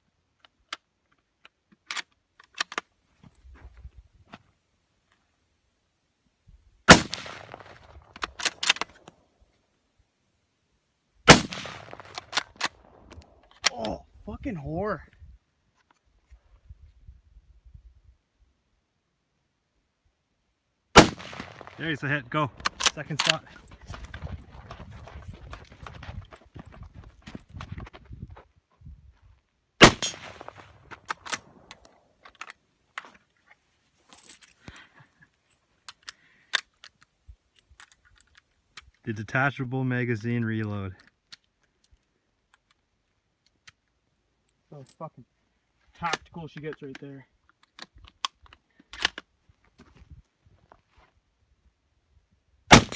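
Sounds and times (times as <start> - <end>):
rifle shot with echo: 6.9 - 8.1, 11.3 - 13.0, 21.0 - 22.9, 29.8 - 31.7
rifle bolt metallic clacks: 7.3 - 9.2, 22.6 - 24.2, 29.8 - 32.6.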